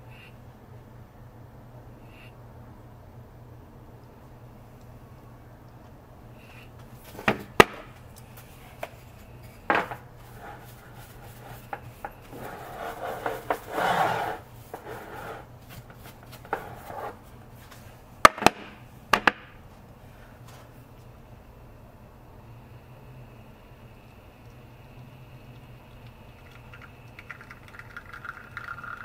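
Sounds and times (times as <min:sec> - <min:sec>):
steady low hum: 0:00.0 - 0:29.0
rubbing: 0:12.3 - 0:17.2.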